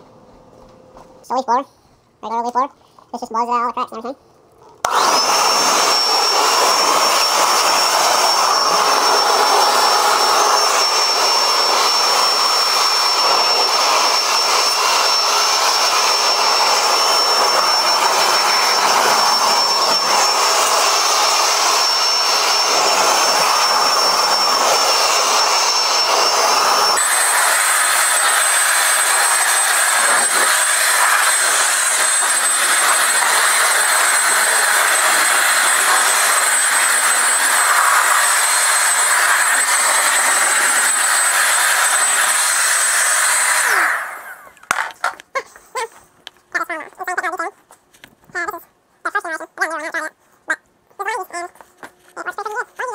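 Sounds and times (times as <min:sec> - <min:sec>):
leaf blower running: 0:04.8 - 0:45.2.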